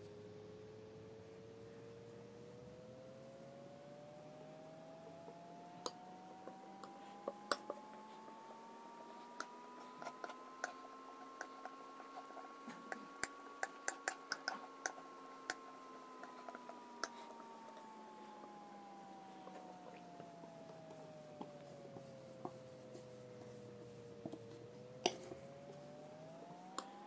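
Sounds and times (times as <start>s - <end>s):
faint steady tone: 0.0s - 27.0s.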